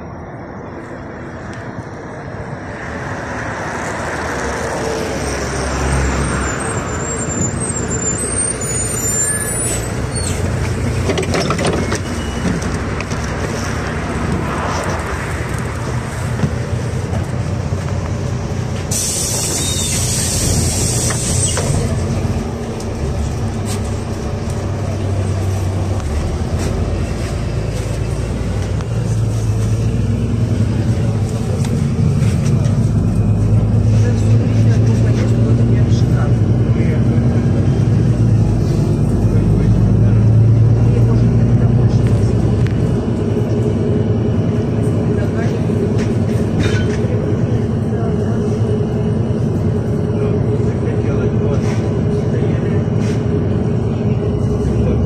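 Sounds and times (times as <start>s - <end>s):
bus diesel engine humming: 0.0s - 55.0s
bus brake squeal: 5.3s - 10.6s, 11.3s - 12.8s, 18.9s - 22.0s
compressed air hiss: 18.9s - 21.6s.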